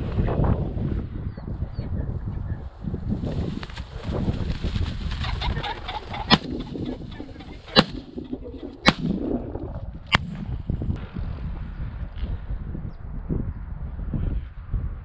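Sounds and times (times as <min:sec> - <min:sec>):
wind rumble on microphone: 0:00.0 - 0:15.0
pheasant calling: 0:05.1 - 0:09.0
shotgun shots: 0:06.3 - 0:06.6, 0:07.8 - 0:08.1, 0:08.8 - 0:09.1.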